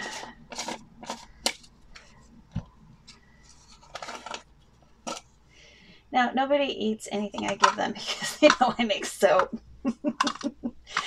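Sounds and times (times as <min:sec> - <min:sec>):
plastic jar handled: 0:00.0 - 0:05.3, 0:07.2 - 0:09.5.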